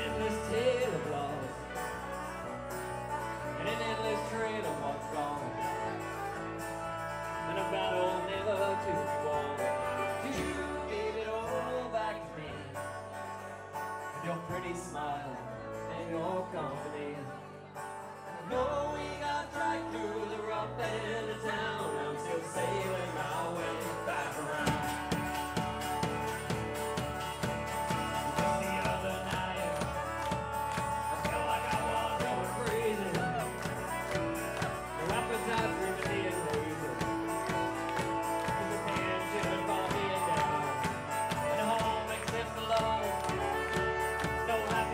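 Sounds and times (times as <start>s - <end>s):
man singing lead vocal: 0.0s - 2.1s, 3.3s - 6.4s, 7.3s - 13.4s, 14.1s - 17.7s, 18.3s - 44.9s
live country-folk band playing: 0.0s - 44.9s
strummed acoustic guitar: 0.0s - 44.9s
drum beat: 24.5s - 44.9s.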